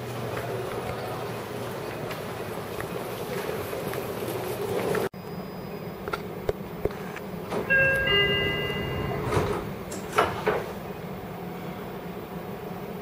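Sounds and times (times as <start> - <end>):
train car hum: 0.0 - 13.0
sliding doors thudding shut: 7.4 - 10.9
train door chime: 7.6 - 10.3.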